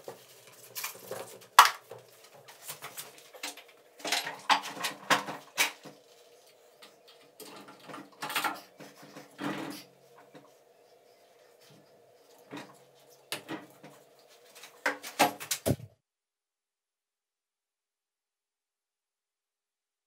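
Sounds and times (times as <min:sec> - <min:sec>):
motor covers knocking and scraping: 0:00.0 - 0:06.1, 0:06.8 - 0:10.6.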